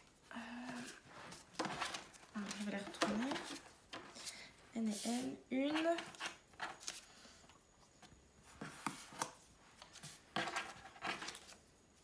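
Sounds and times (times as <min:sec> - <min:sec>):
paper cards rustling: 0:01.2 - 0:07.1.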